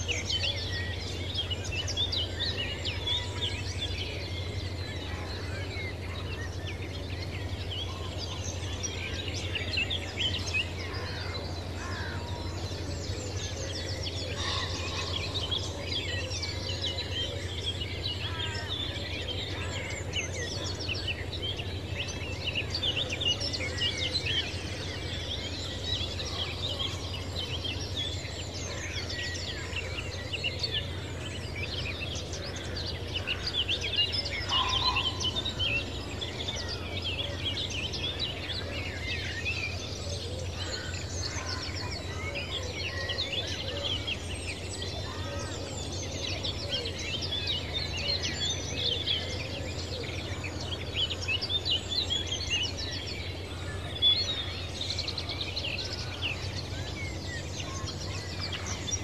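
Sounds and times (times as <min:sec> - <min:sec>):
small birds chirping and singing: 0:00.0 - 0:59.0.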